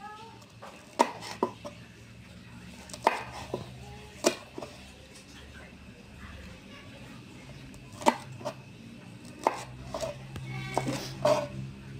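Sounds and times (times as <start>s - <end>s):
knife chopping on wooden board: 0.9s - 1.6s, 2.9s - 4.7s, 8.0s - 8.6s, 9.4s - 11.5s.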